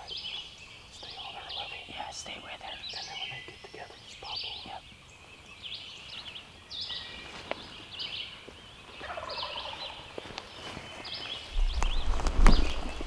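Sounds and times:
songbirds chirping and singing: 0.0s - 13.0s
turkey gobbling: 9.0s - 10.0s.

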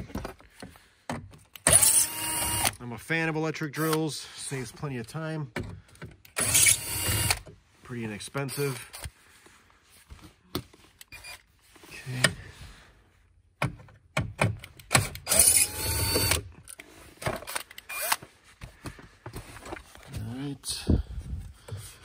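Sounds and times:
screws and metal clicking: 1.5s - 2.8s, 6.2s - 7.4s, 14.6s - 18.2s
cordless drill whirring: 1.6s - 2.8s, 6.4s - 7.4s, 15.2s - 16.5s, 17.5s - 18.2s.

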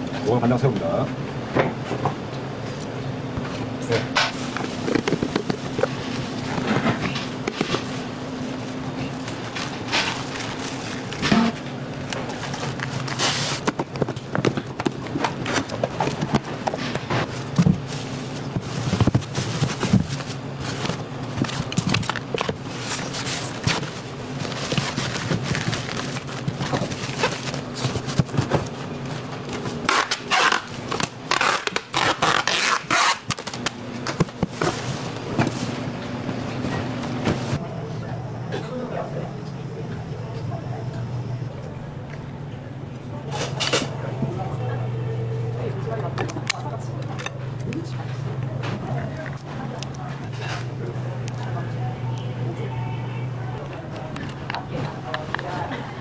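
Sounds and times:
steady low hum: 0.0s - 56.0s
plastic containers knocking and scraping: 3.9s - 7.9s, 9.5s - 28.8s.

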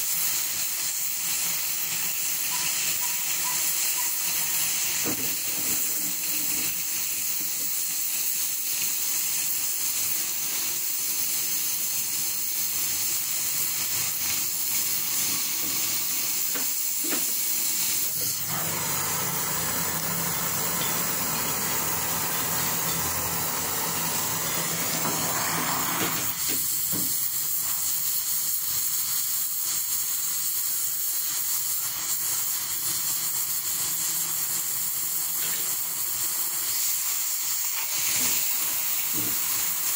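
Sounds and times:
cutting torch flame hissing: 0.0s - 39.9s.

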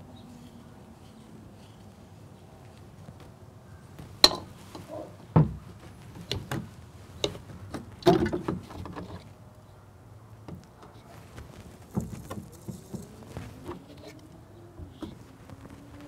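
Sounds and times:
plastic pipe parts clicking and knocking: 4.2s - 9.3s, 11.8s - 14.2s
dull thump: 5.3s - 8.7s, 11.6s - 13.8s.

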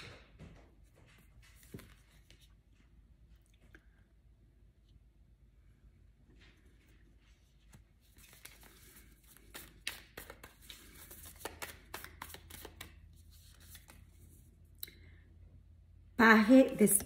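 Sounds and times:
cards being shuffled: 6.8s - 14.5s.

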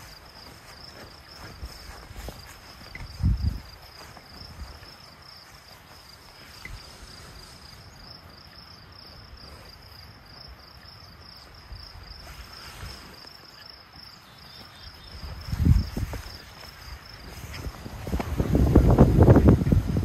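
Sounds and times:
faint low wind rumble: 0.0s - 13.3s, 14.6s - 20.0s
crickets chirring: 0.0s - 20.0s.

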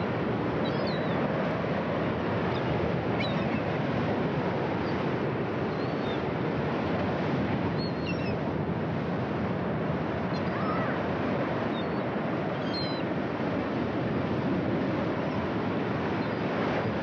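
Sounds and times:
ocean surf breaking: 0.0s - 7.8s, 8.4s - 17.0s.

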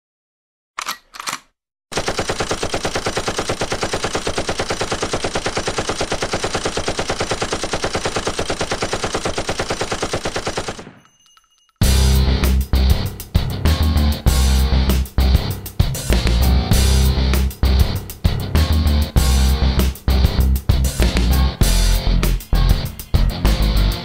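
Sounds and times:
machine gun firing: 0.8s - 11.1s.

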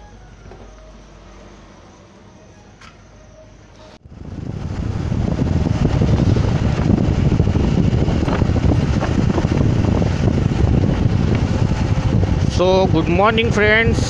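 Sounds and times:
motorcycle engine running: 0.0s - 14.0s
wind buffeting microphone: 4.0s - 14.0s.

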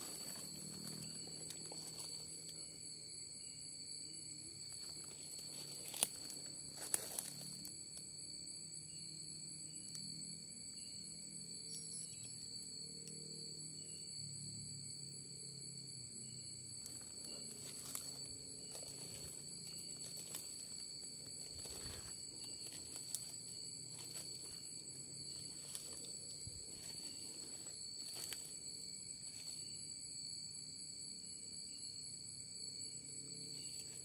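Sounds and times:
footsteps on forest floor: 0.0s - 2.4s, 4.7s - 7.6s, 16.8s - 29.7s
night insects shrilling: 8.8s - 34.0s.

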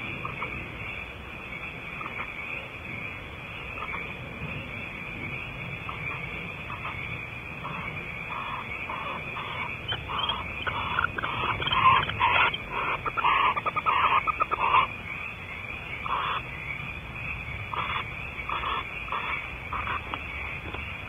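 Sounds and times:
barn owls calling: 5.9s - 15.3s, 16.0s - 16.6s, 17.7s - 20.8s.

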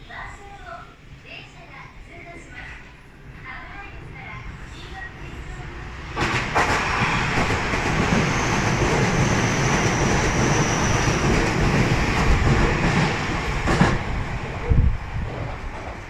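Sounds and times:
train wheels rumbling on rails: 3.6s - 16.0s.

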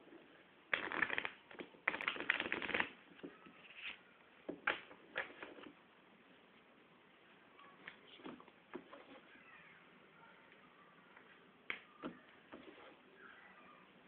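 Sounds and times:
playing cards shuffling: 0.7s - 4.0s, 4.6s - 5.8s.

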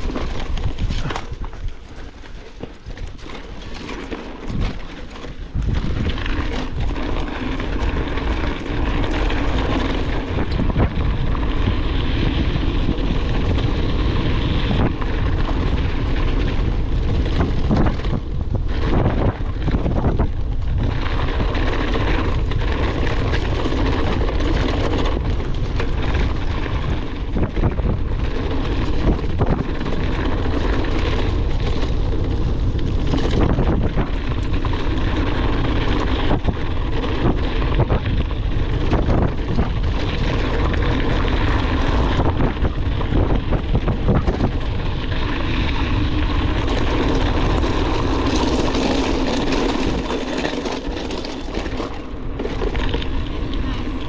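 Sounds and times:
mountain bike rattling on trail: 0.0s - 54.0s
wind on camera microphone: 0.0s - 54.0s.

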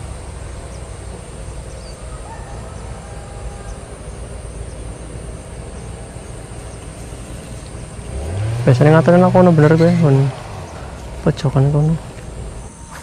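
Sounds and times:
faint bird chirps: 0.0s - 8.2s
steady low rumble: 0.0s - 13.0s.

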